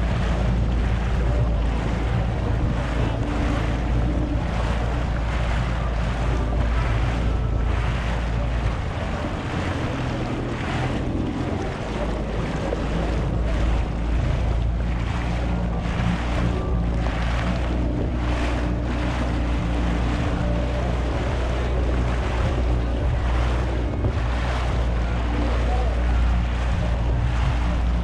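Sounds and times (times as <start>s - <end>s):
jet ski engine droning: 0.0s - 28.0s
water splashing against hull: 0.0s - 28.0s
wind buffeting microphone: 0.0s - 28.0s.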